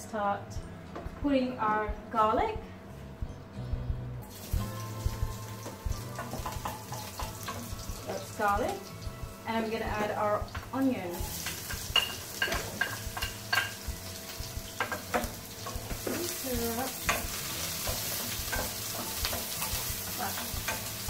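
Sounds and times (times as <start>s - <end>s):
onion sizzling in oil: 4.2s - 21.0s.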